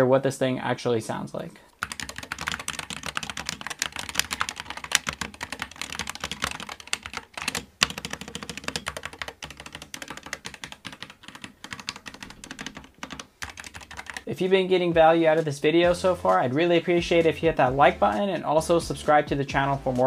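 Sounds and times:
keyboard typing: 1.7s - 14.3s.

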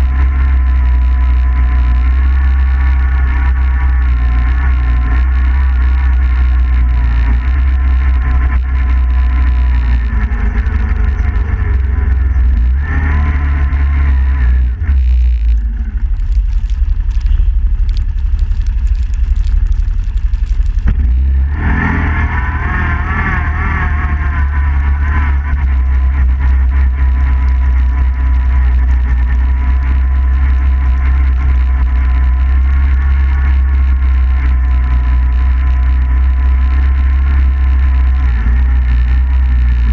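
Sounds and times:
atv engine running: 0.0s - 39.9s
heavy low rumble: 0.0s - 39.9s
sharp clicks: 15.0s - 21.2s.

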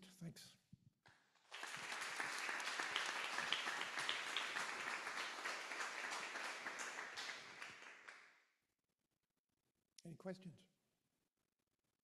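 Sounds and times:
audience applauding: 1.4s - 8.3s.

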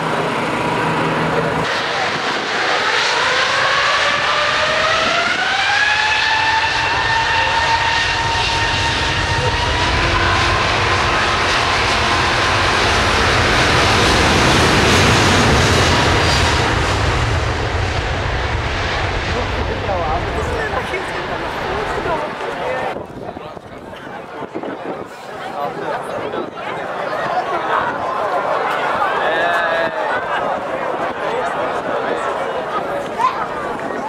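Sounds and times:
deep jet rumble: 0.0s - 25.1s
jet engines whining: 0.0s - 25.1s.

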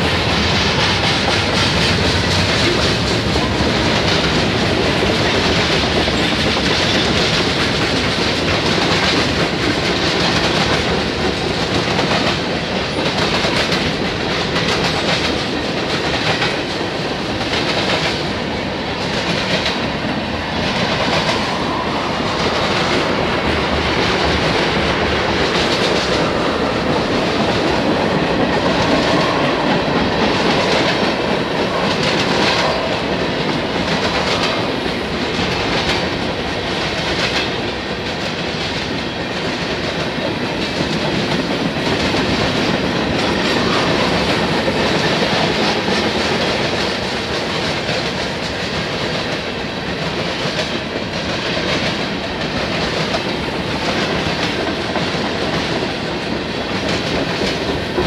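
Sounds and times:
steel wheels rolling on rail: 0.0s - 58.0s.

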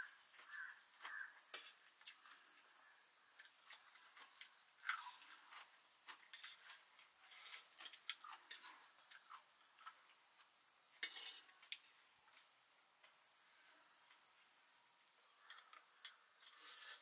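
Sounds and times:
noodles being slurped: 16.5s - 17.0s.

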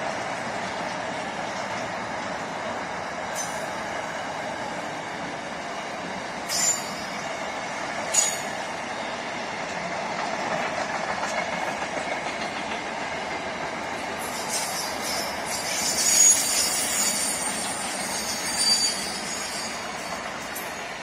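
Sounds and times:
freight train cars rolling: 0.0s - 21.0s
high-pitched wheel squeals: 14.2s - 20.8s.

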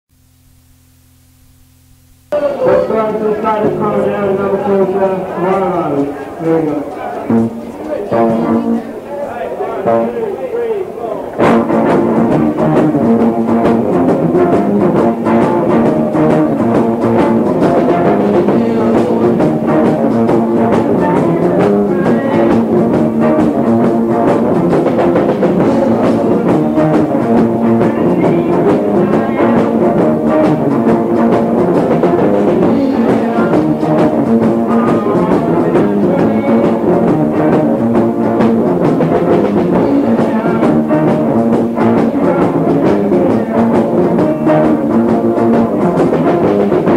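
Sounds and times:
electric guitars: 2.2s - 10.2s, 10.9s - 46.9s
faint vocals: 2.3s - 11.5s, 12.2s - 46.9s
drum kit: 11.4s - 46.9s.

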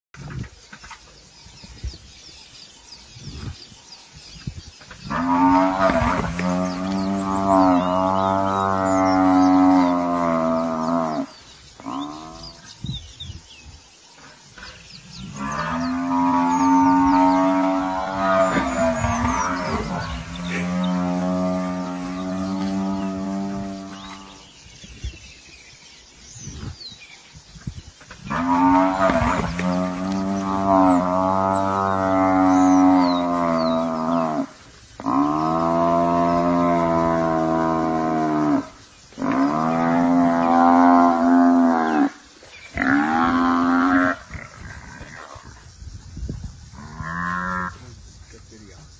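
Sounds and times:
buffalo bellowing: 5.0s - 12.6s, 15.2s - 24.4s, 28.2s - 45.2s.

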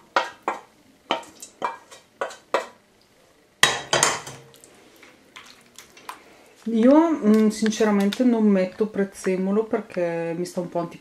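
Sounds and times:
spoon clinking and scraping pot: 0.0s - 2.7s.

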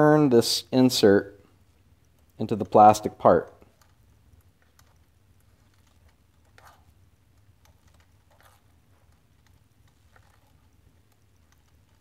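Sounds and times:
soft scraping rustles: 7.7s - 12.0s.

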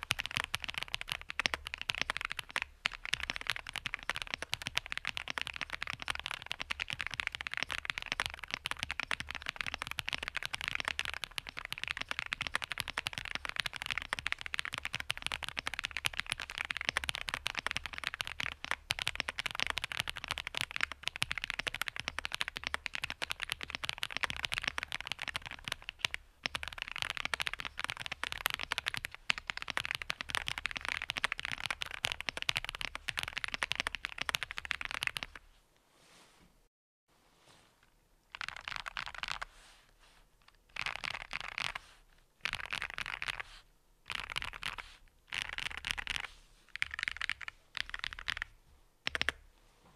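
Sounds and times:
mechanical keyboard typing: 0.0s - 35.4s, 38.3s - 39.4s, 42.4s - 43.4s, 44.1s - 48.5s, 49.1s - 49.4s.

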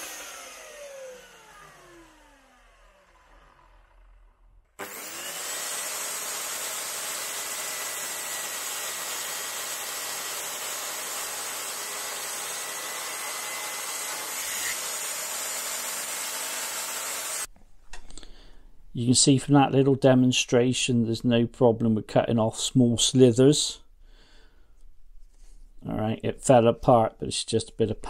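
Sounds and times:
saw blade cutting wood: 0.0s - 4.1s, 4.8s - 17.5s
mitre saw motor whining: 0.0s - 17.5s.

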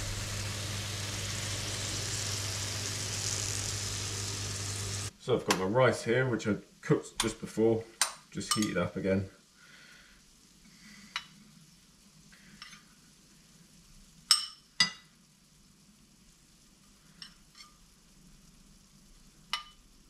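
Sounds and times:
extractor fan hum: 0.0s - 5.1s.

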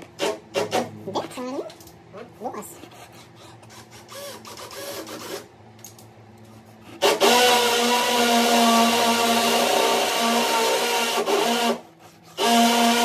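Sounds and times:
electric drill boring into wall: 7.0s - 13.0s.

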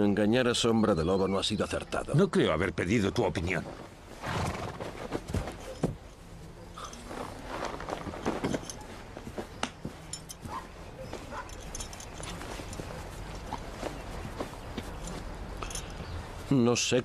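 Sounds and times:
horse hooves knocking: 7.7s - 15.9s.

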